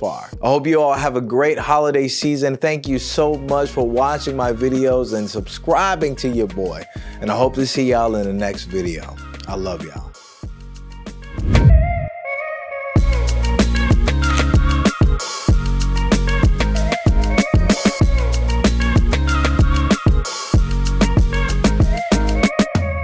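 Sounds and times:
electronic music with drum beat: 0:00.0 - 0:01.1, 0:02.1 - 0:12.0, 0:13.0 - 0:23.0
heavy bass hit: 0:11.4 - 0:12.1
whoosh: 0:11.4 - 0:12.2.

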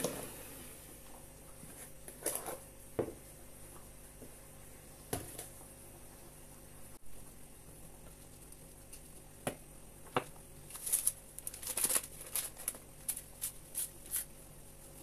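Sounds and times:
sachet crinkling: 0:10.7 - 0:14.3.

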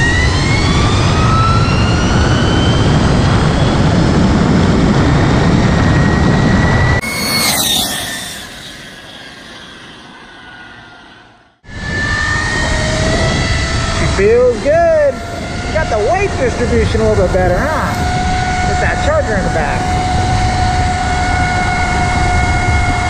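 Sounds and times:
wind rush on microphone: 0:00.0 - 0:23.0
motorbike whooshing by: 0:06.4 - 0:10.1.

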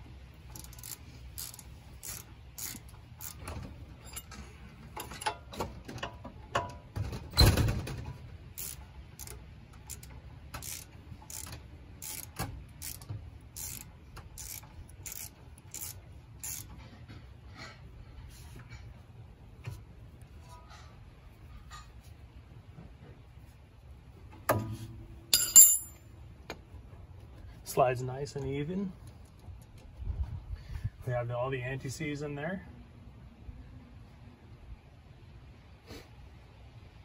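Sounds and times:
ratchet wrench clicking: 0:00.4 - 0:03.4, 0:08.6 - 0:16.8
metal clank: 0:24.5 - 0:26.0.

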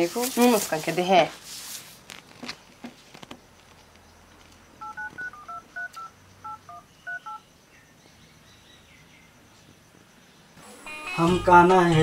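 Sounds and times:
phone keypad touch tones: 0:04.8 - 0:07.4.

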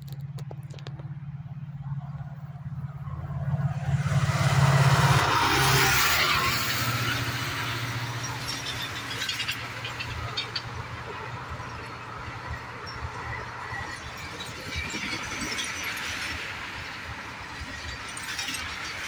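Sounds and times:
diesel locomotive engine throb: 0:00.0 - 0:18.2
train wheels clicking over rail joints: 0:04.0 - 0:19.0.

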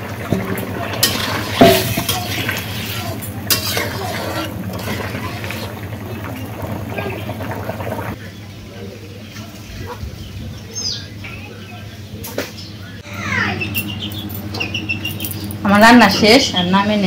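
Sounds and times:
cooking pot hissing: 0:00.0 - 0:08.2
metal spoon scraping a wok: 0:01.0 - 0:05.7.

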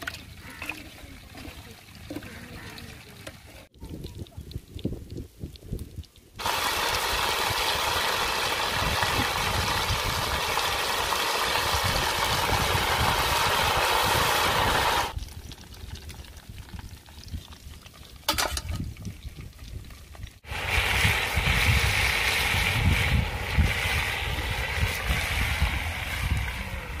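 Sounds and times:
meat sizzling in hot oil: 0:06.4 - 0:18.2, 0:19.3 - 0:27.0.

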